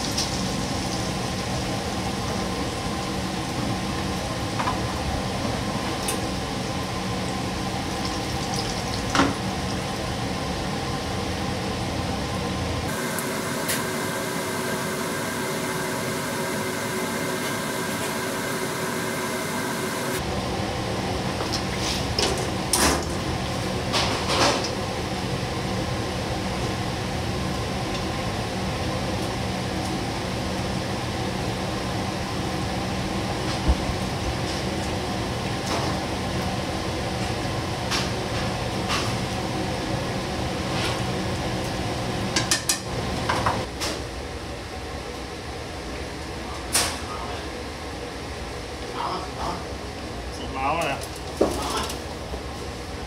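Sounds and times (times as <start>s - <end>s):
doughnuts sizzling in hot oil: 0.0s - 11.2s
kitchen hum: 0.0s - 53.0s.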